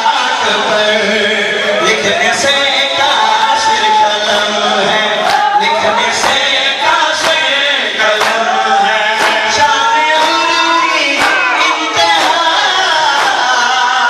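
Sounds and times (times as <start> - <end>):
man singing a lament: 0.0 - 14.0
rhythmic sharp slaps: 5.2 - 14.0.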